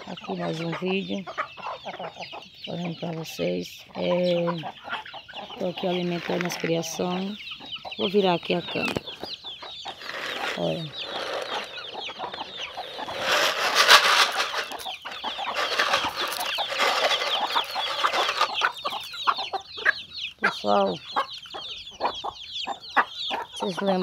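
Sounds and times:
chicks peeping: 0.0 - 24.0
hens clucking: 0.0 - 24.0
loud rustling: 9.9 - 18.7.

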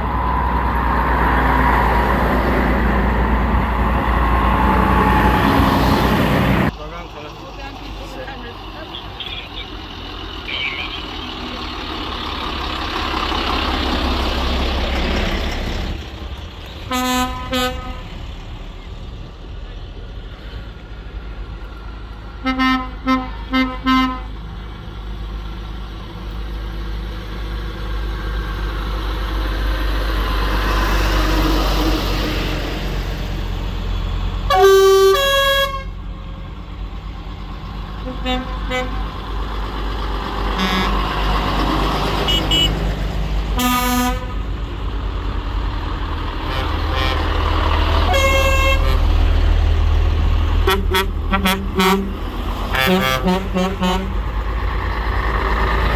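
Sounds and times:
old vehicles driving past: 0.0 - 55.9
horns tooting: 10.4 - 11.5, 16.8 - 18.1, 22.4 - 24.4, 34.5 - 36.0, 38.0 - 39.1, 40.5 - 41.1, 42.2 - 42.8, 43.6 - 44.4, 46.4 - 47.4, 48.0 - 49.1, 50.6 - 54.2.

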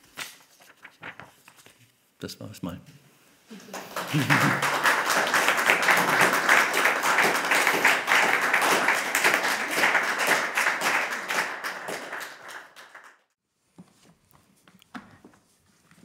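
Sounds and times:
audience applauding: 3.5 - 13.4.

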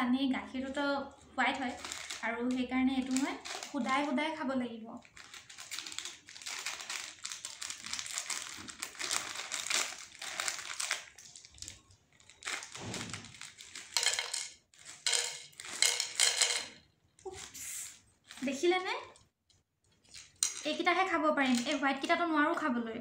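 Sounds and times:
plastic packet crinkling: 1.1 - 4.2, 5.0 - 14.1, 18.2 - 18.7
cereal rattling onto a plate: 5.4 - 16.7.

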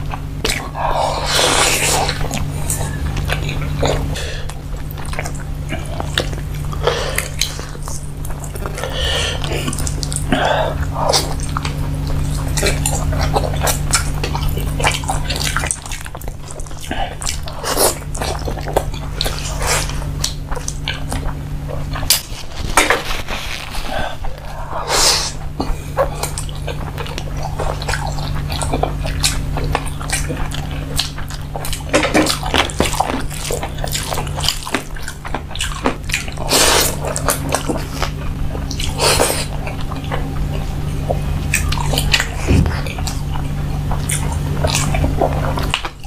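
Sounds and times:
steady low hum: 0.0 - 46.0
wet chewing: 0.0 - 46.0
lip smacks and mouth clicks: 0.1 - 10.3, 25.2 - 46.0.

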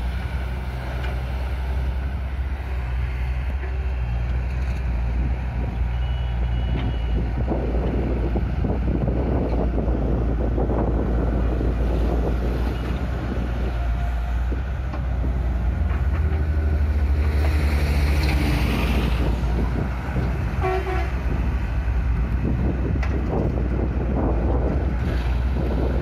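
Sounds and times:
diesel engines rumbling: 0.0 - 26.0
horn-like tone: 20.6 - 21.2.

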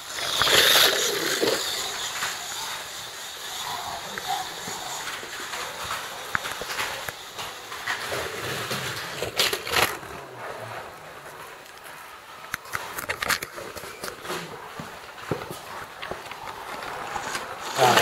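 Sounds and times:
slot cars running: 0.0 - 10.3
clatter and rattles: 0.0 - 18.0.

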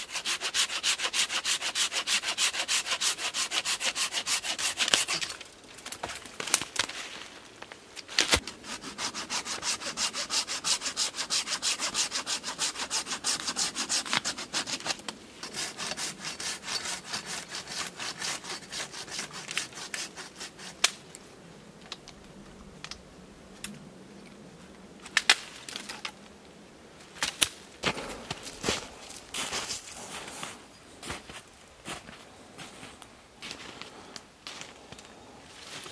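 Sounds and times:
hand saw cutting branch: 0.0 - 5.5, 8.2 - 21.0.

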